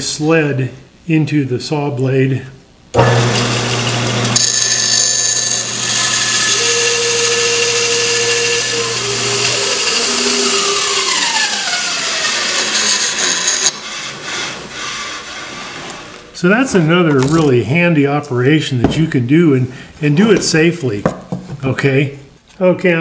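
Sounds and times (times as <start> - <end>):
bandsaw cutting wood: 3.0 - 16.4
saw running down whine: 3.0 - 16.4.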